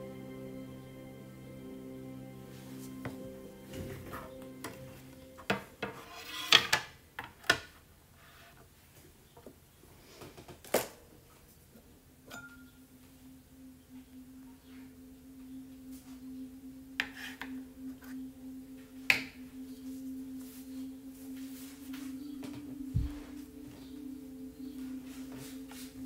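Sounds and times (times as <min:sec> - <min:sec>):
low hum: 0:00.0 - 0:05.9, 0:11.6 - 0:26.0.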